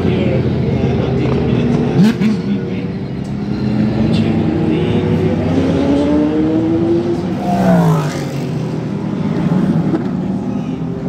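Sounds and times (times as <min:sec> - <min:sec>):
racing car engines accelerating: 0:03.3 - 0:10.9
car passing close: 0:07.1 - 0:09.2.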